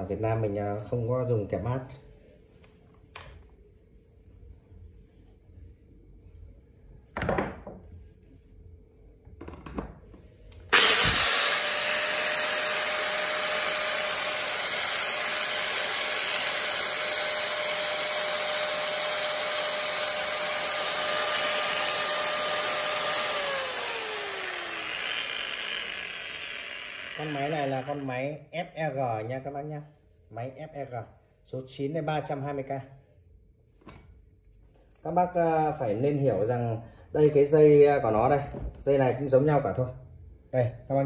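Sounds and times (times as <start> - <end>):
angle grinder whining: 10.7 - 28.2.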